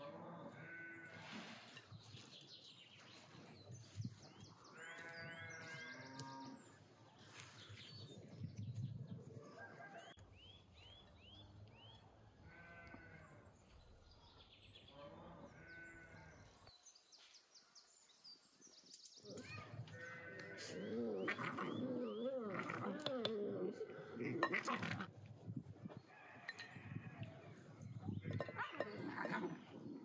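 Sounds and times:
faint sheep bleating: 0.5s - 1.2s, 4.8s - 6.6s, 12.4s - 13.4s, 19.4s - 21.8s.

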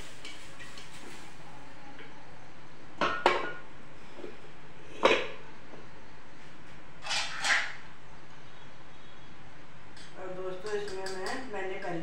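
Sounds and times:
utensils clinking on metal pots: 7.0s - 7.8s, 10.0s - 12.0s.

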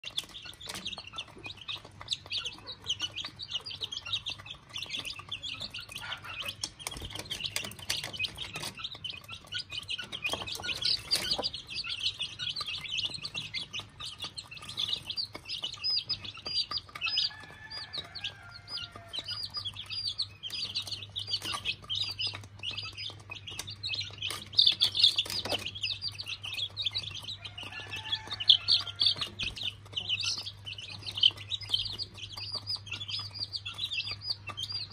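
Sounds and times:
chicks peeping: 0.0s - 34.9s
hen clucking: 0.0s - 34.9s
pecking ticks on feed bowl: 0.0s - 34.9s.

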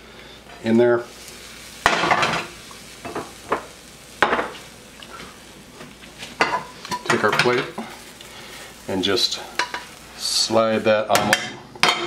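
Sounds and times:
mushrooms sizzling in hot pan: 0.0s - 12.0s
utensil scraping and knocking pans: 6.4s - 7.9s.

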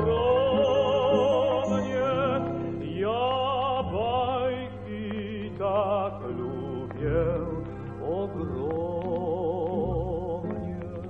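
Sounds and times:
mandolin orchestra music: 0.0s - 3.2s.

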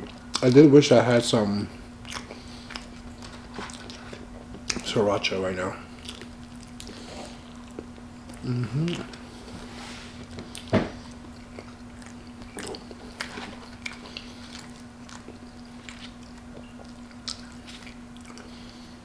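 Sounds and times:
steady low hum: 0.0s - 19.0s
chewing and mouth smacks: 2.0s - 4.9s, 5.9s - 9.2s, 10.2s - 18.6s.

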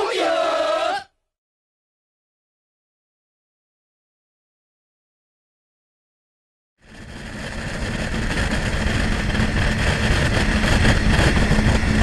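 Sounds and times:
outboard motors at speed: 6.8s - 12.0s
wind rushing: 6.9s - 12.0s.

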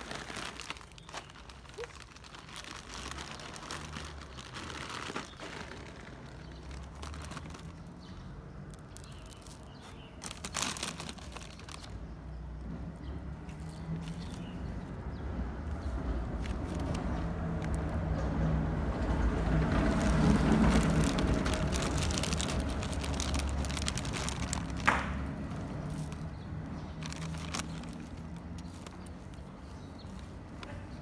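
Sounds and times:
dry kibble pouring: 0.0s - 8.0s, 8.6s - 12.0s, 19.3s - 30.4s
plastic bag crinkling: 0.0s - 12.3s, 13.4s - 15.0s, 15.7s - 31.0s.

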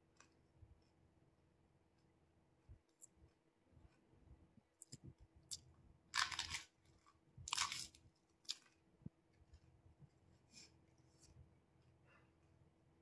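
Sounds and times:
crisp shells crunching when chewed: 6.2s - 8.8s.

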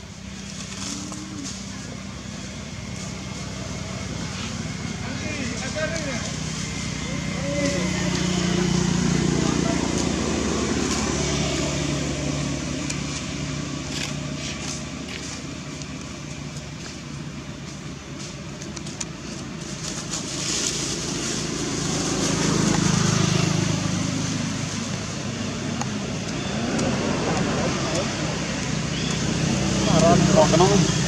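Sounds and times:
vehicle engine running: 0.0s - 31.0s.

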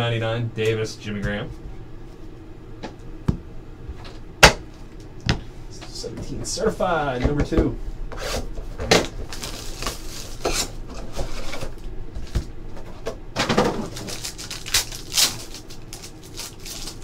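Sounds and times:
foil pack tearing and crinkling: 9.0s - 12.4s, 13.6s - 17.0s.

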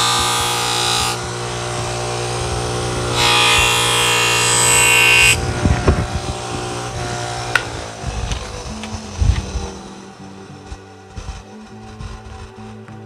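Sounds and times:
knife blade rasping on buffing wheel: 0.0s - 12.5s
bench grinder motor humming: 0.0s - 13.0s.

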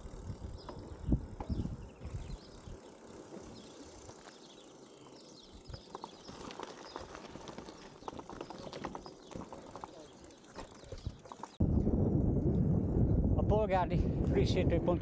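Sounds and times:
bike clicks and rattles: 0.0s - 11.6s
bicycle rolling over gravel: 0.0s - 11.7s.

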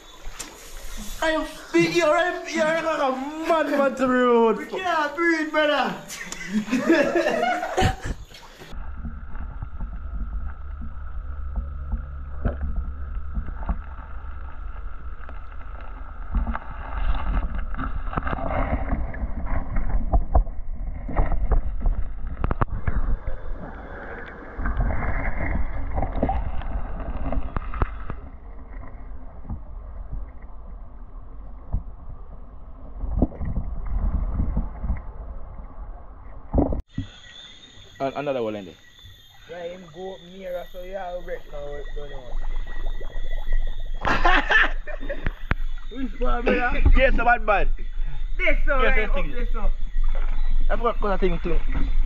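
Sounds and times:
muffled underwater river rumble: 6.5s - 37.3s, 39.2s - 52.0s
underwater knocks and clicks: 7.8s - 37.1s, 42.3s - 46.0s.

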